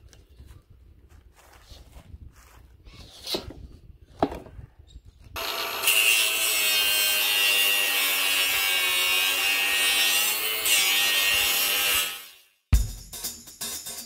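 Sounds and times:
angle grinder cutting steel: 5.4 - 12.5.

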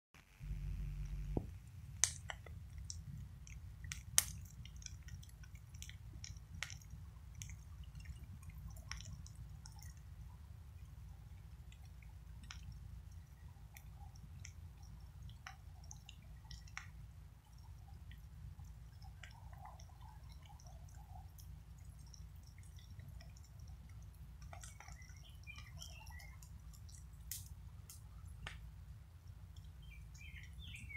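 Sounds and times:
low rumble: 0.2 - 1.7
brush pile fire crackling: 0.2 - 30.9
low steady rumble: 0.2 - 30.9
sharp pops: 1.0 - 6.8.

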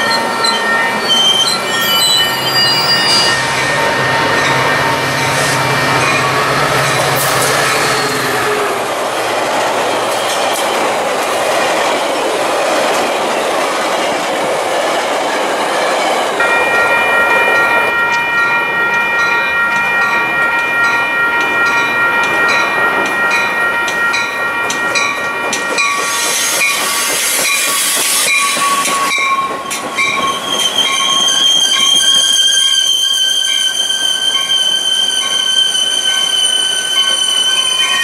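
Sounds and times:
crossing bell ringing: 0.0 - 9.1, 16.4 - 38.0
train squealing: 0.0 - 11.4, 15.5 - 38.0
train pulling into station: 0.0 - 38.0.

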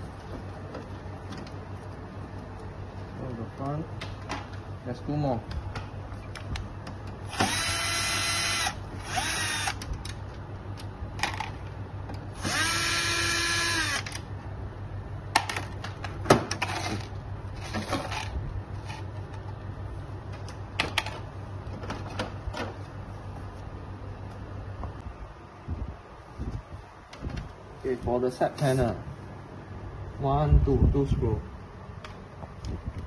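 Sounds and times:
cordless drill whirring: 7.3 - 9.9, 12.4 - 14.1.

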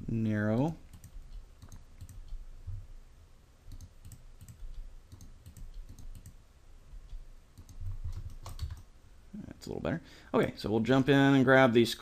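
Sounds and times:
computer keyboard and mouse clicks: 0.6 - 2.4, 3.7 - 6.4, 7.1 - 8.9.

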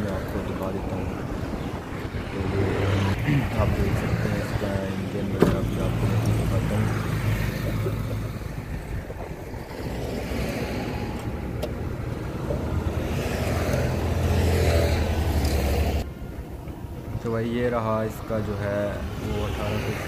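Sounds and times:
vehicle engine droning: 0.0 - 20.0.

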